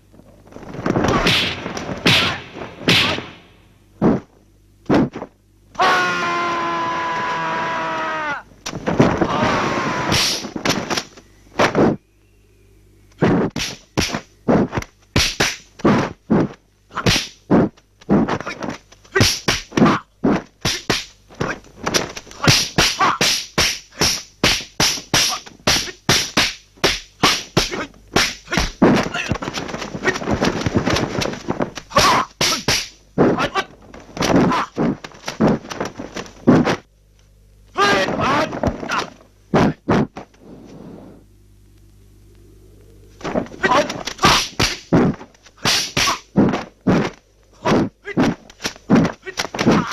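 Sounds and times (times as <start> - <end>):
punch sound effects: 1.0 - 4.2.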